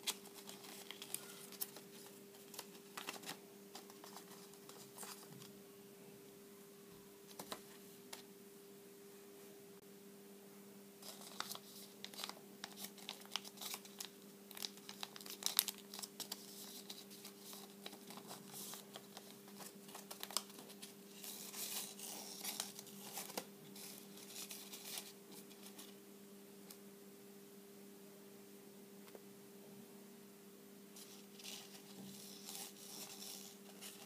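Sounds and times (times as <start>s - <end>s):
paper crinkling and rustling: 0.0s - 5.5s, 7.3s - 8.2s, 11.0s - 26.0s, 31.0s - 34.0s
faint steady hum: 0.0s - 34.0s.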